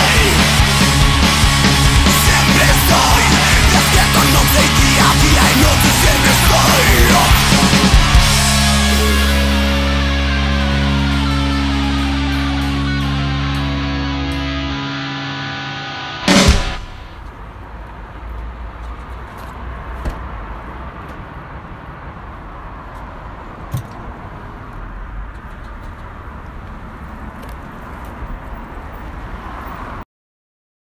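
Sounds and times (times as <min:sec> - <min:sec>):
distorted electric guitar chord: 0:00.0 - 0:17.2
loud hit: 0:16.2 - 0:17.2.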